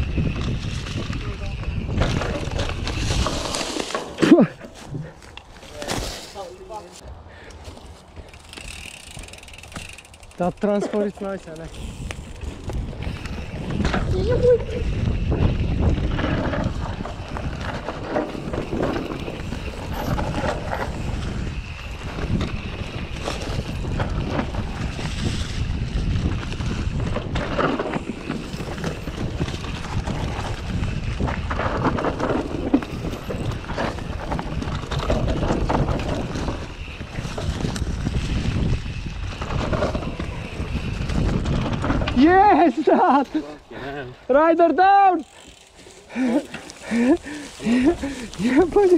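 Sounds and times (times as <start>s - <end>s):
wind buffeting microphone: 0.0s - 3.6s, 11.6s - 43.3s, 46.1s - 48.9s
tyres rumbling on dirt: 0.0s - 6.9s, 8.1s - 44.5s
bike rattling over bumps: 0.0s - 7.0s, 7.6s - 48.9s.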